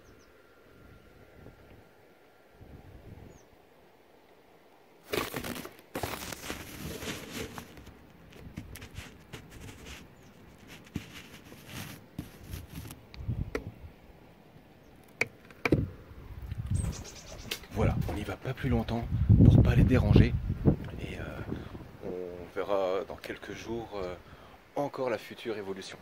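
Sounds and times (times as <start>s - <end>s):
scraping and rustling on wood: 5.0s - 13.0s.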